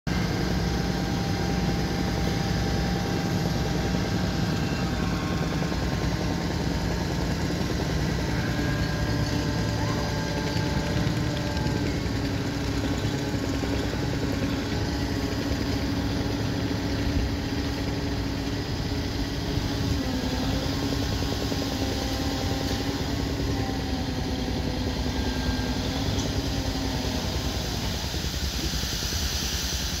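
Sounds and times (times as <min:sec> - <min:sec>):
diesel engine running: 0:00.1 - 0:30.0
steady hydraulic hum: 0:00.1 - 0:30.0.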